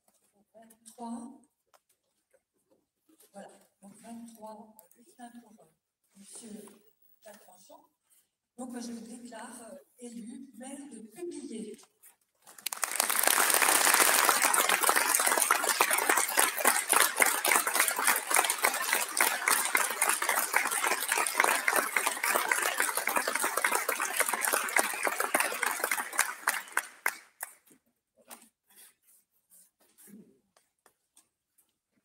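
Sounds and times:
crowd applauding: 12.6s - 27.6s.

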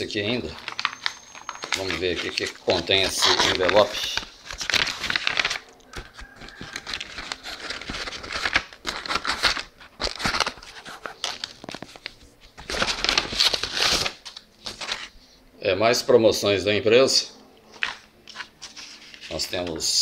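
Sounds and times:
envelope tearing: 0.0s - 15.1s
paper crinkling and rustling: 0.0s - 15.3s, 17.6s - 20.0s.

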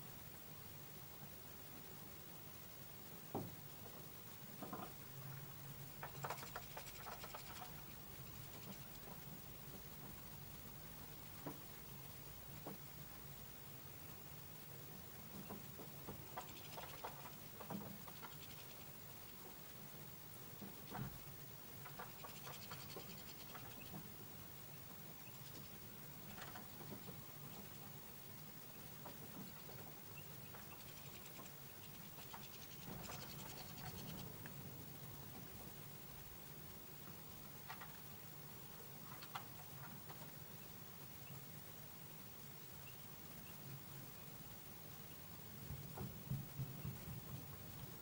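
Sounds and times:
wing flutter: 5.9s - 9.9s, 15.4s - 19.8s, 20.7s - 24.2s, 28.6s - 34.5s
birds tapping on plastic feeder: 6.0s - 9.2s, 15.3s - 19.6s, 20.6s - 24.2s, 29.0s - 34.3s.

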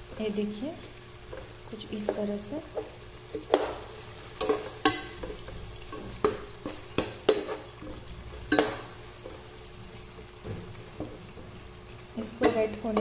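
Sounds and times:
onions sizzling in oil: 0.0s - 13.0s
spatula knocking and scraping pan: 1.3s - 9.4s, 10.3s - 11.6s, 12.3s - 13.0s.

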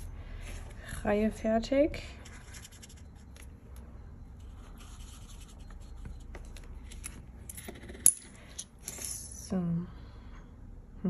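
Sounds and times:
marker scratching on paper: 4.4s - 6.2s
coin clinking: 6.8s - 9.4s.

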